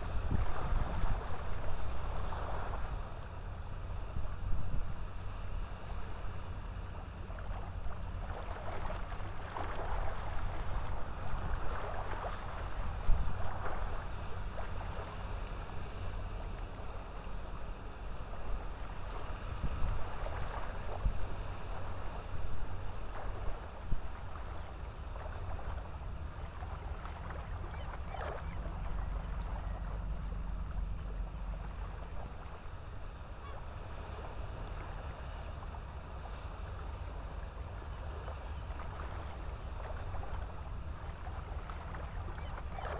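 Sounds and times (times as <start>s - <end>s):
wind rumble on microphone: 0.0s - 42.9s
faint call-like sound: 27.6s - 30.0s, 42.3s - 42.9s.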